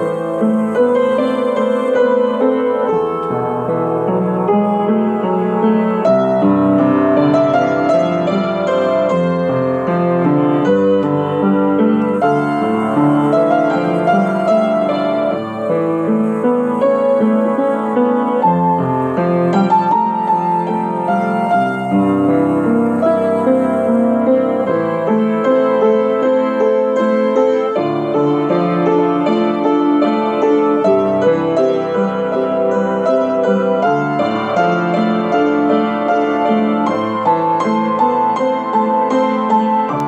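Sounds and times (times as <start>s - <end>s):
upright piano playing: 0.0s - 40.0s.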